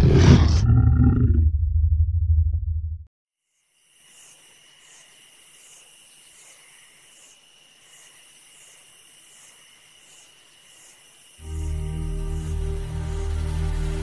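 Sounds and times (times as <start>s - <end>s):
insect pulsing chirr: 3.4s - 13.8s
insect high trill: 3.4s - 14.0s.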